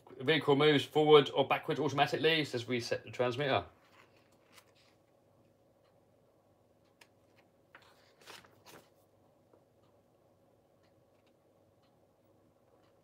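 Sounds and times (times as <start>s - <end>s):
faint steady hum: 0.0s - 13.0s
paper rustling: 3.8s - 5.1s, 7.2s - 9.1s.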